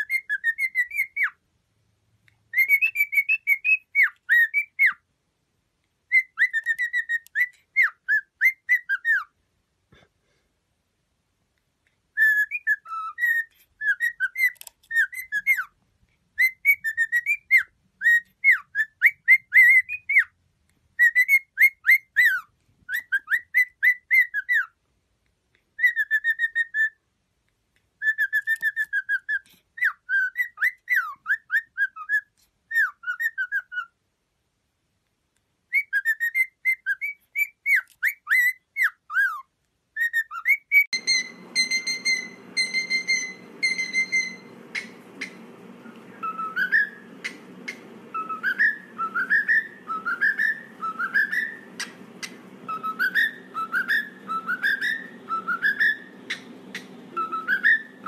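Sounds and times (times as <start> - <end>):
cockatiel whistling: 0.0 - 1.4, 2.5 - 5.0, 6.1 - 9.3, 12.1 - 15.8, 16.4 - 20.4, 21.0 - 24.7, 25.8 - 27.0, 28.0 - 34.0, 35.7 - 58.0
low hiss: 41.0 - 58.0
steady high tone: 41.0 - 58.0.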